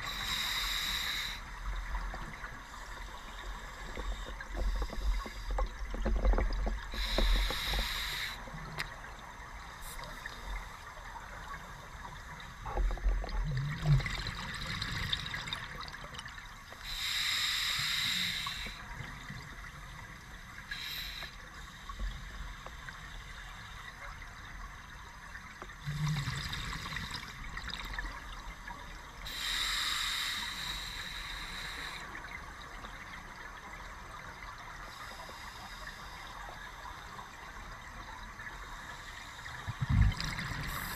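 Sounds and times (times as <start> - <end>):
faint low underwater sounds: 0.0 - 40.9
exhaled bubbles underwater: 12.2 - 16.4, 25.7 - 28.3, 39.6 - 40.9.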